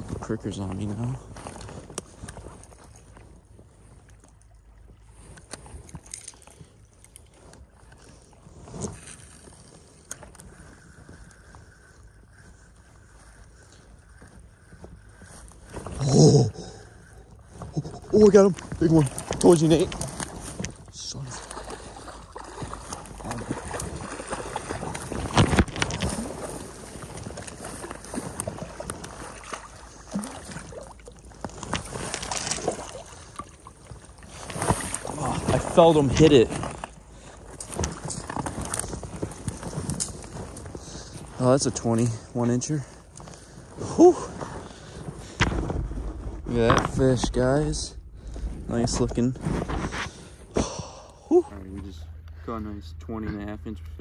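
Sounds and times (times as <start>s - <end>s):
rustling through dry grass: 0.8s - 51.0s
water splashing: 2.1s - 37.0s, 44.2s - 51.0s
wind on microphone: 44.2s - 50.6s.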